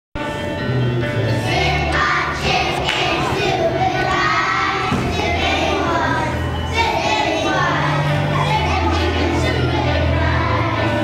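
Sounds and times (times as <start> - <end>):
steady low notes: 0.2 - 11.0
children singing together: 1.2 - 11.0.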